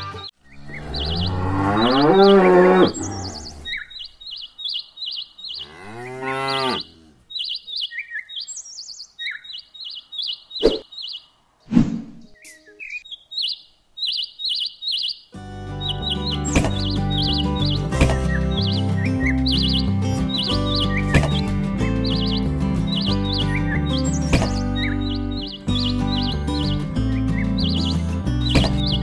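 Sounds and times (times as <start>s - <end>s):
bird chirps: 0.0s - 29.0s
cow mooing: 0.6s - 3.7s, 5.6s - 7.2s
sharp knocks: 16.5s - 17.0s, 18.0s - 18.4s, 21.1s - 21.5s, 24.3s - 24.6s, 28.5s - 29.0s.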